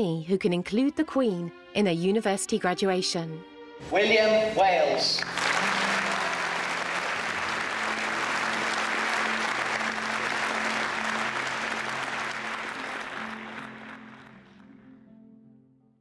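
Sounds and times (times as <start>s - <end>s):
background music of low held notes: 0.0s - 16.0s
crowd applauding: 4.8s - 14.7s.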